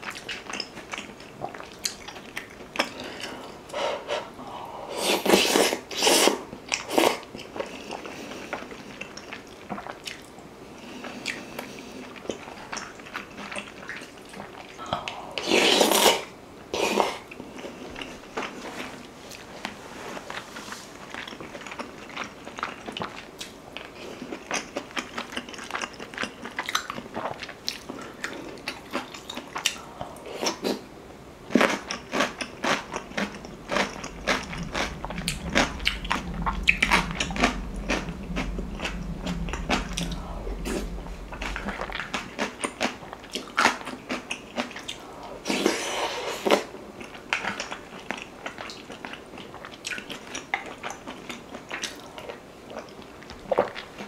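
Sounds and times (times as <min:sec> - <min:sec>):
close-miked chewing: 0:00.0 - 0:04.3, 0:16.7 - 0:30.8, 0:31.5 - 0:54.0.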